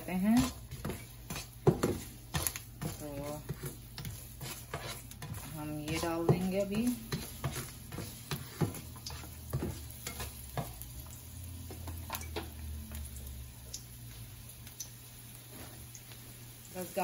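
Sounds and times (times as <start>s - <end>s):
garlic and chillies sizzling in oil: 0.0s - 17.0s.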